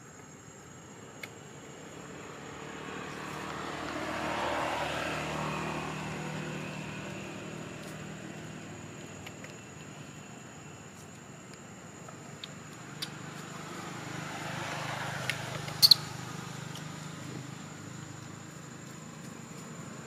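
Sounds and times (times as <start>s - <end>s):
vehicle passing by: 1.7s - 9.2s, 13.1s - 20.0s.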